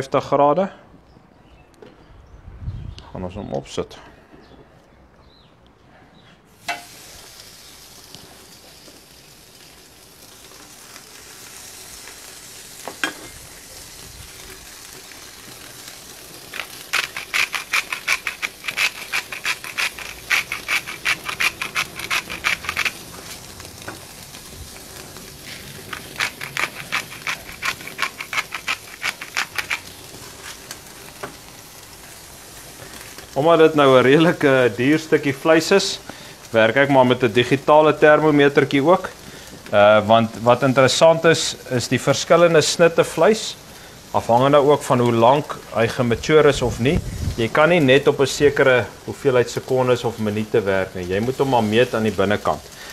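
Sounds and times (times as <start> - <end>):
steaks sizzling on grill: 6.5 - 52.9
spice mill grinding clicks: 16.5 - 23.0.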